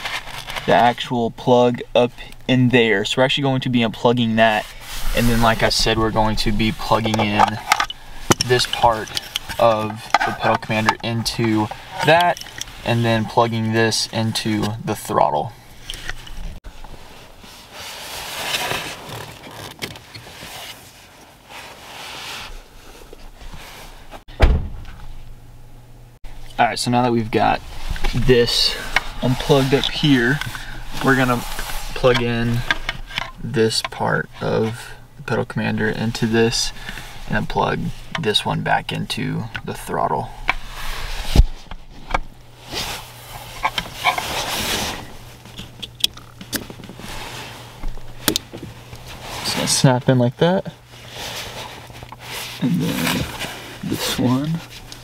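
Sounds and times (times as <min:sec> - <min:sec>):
rustling and handling noise: 0:00.0 - 0:25.4, 0:26.2 - 0:55.0
dull thump: 0:24.3 - 0:25.3.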